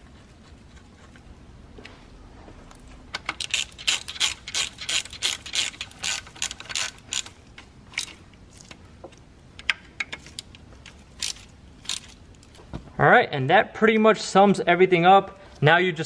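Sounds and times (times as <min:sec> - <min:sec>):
ratchet wrench clicking: 0:03.3 - 0:07.4.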